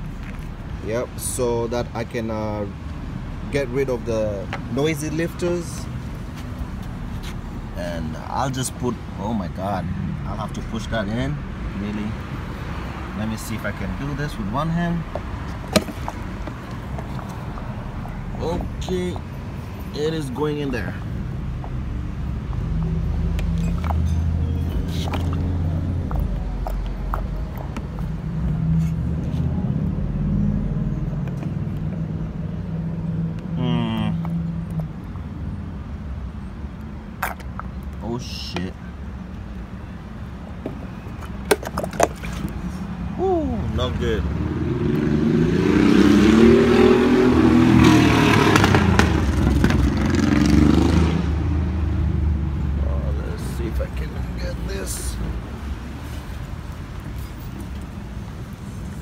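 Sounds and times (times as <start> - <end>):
vehicle engine accelerating past: 44.3 - 52.5.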